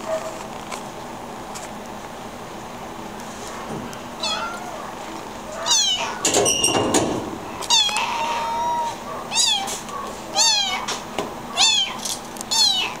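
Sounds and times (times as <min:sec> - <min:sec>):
kitten meowing: 0:04.2 - 0:04.8, 0:05.6 - 0:06.2, 0:07.6 - 0:10.9, 0:11.6 - 0:13.0.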